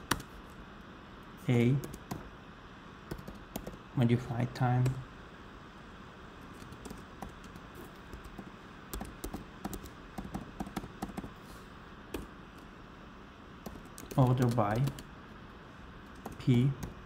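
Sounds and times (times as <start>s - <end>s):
keyboard keys clicking: 6.6s - 11.3s.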